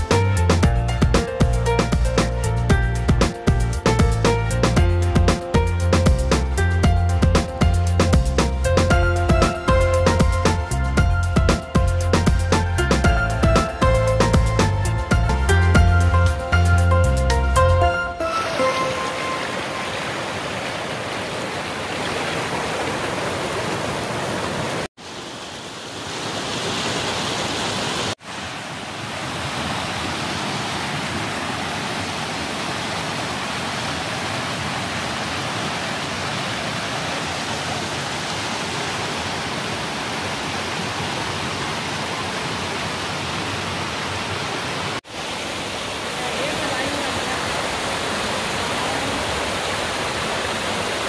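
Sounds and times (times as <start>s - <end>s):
stream rushing over rocks: 18.0s - 51.0s.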